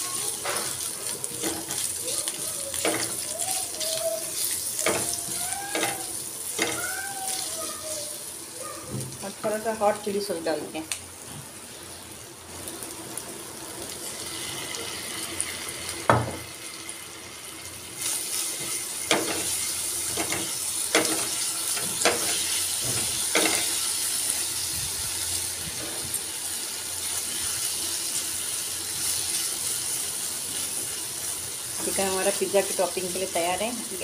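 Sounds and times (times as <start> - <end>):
chicken sizzling in frying pan: 0.0 - 34.0
spatula scraping and knocking pan: 18.6 - 23.8.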